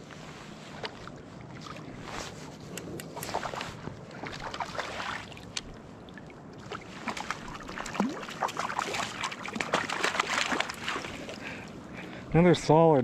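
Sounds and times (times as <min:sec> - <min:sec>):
river current washing: 0:00.1 - 0:12.3
fish splashing at surface: 0:06.6 - 0:11.3.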